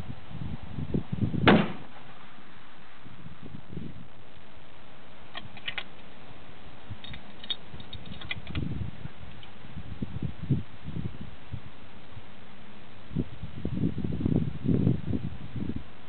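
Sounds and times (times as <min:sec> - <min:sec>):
low thumps: 0:01.4 - 0:02.2.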